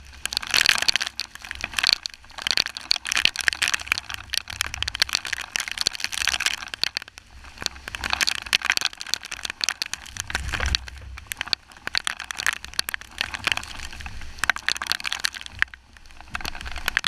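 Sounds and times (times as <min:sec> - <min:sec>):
raindrops ticking on camera housing: 0:00.0 - 0:17.0
rainfall hiss: 0:00.0 - 0:17.0
low rumble: 0:10.0 - 0:12.0.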